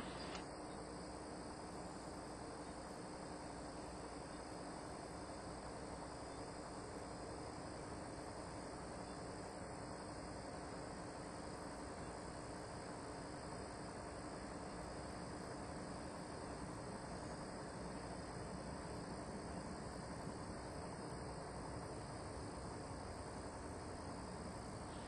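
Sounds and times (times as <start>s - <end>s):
steady hiss: 0.0s - 0.4s.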